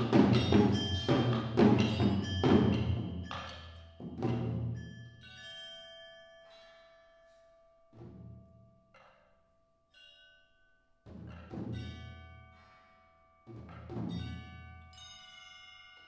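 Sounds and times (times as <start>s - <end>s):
struck metal and mallet tones: 0.0s - 7.4s.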